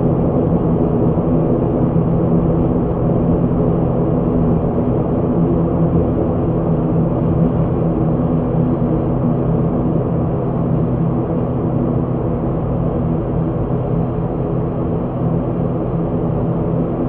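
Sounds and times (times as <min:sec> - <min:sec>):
turboprop engines droning: 0:00.0 - 0:17.0.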